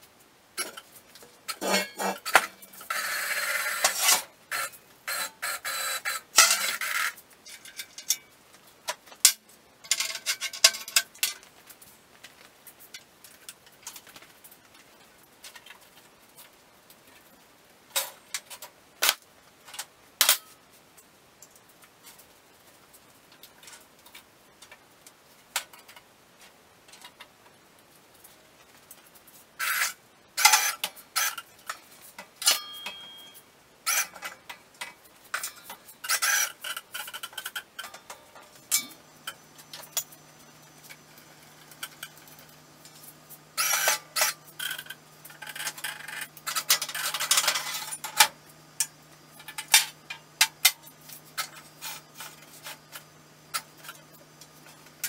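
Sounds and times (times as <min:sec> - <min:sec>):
steel plate clanking and scraping: 0:01.5 - 0:05.2, 0:32.4 - 0:34.5, 0:35.3 - 0:55.0
low steady hum: 0:37.8 - 0:55.0.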